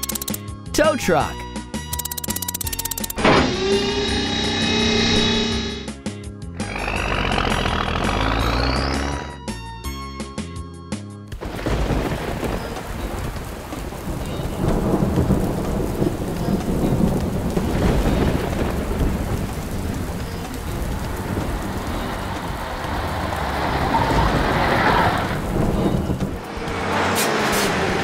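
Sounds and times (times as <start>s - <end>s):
heavy rain falling: 11.3s - 28.0s
thunder rumbling: 11.3s - 28.0s.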